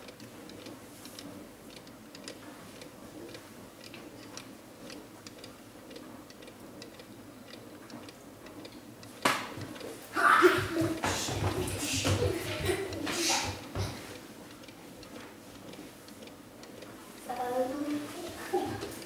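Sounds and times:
faint light mechanical clicks: 0.0s - 9.9s, 14.1s - 19.0s.

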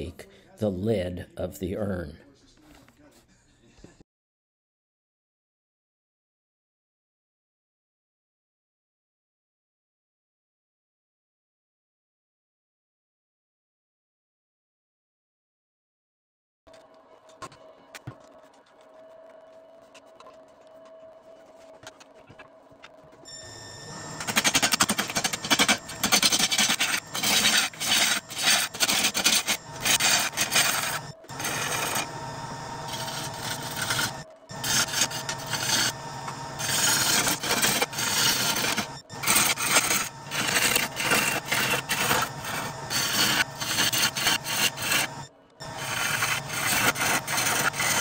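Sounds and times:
lathe tool scraping wood: 23.4s - 48.0s.

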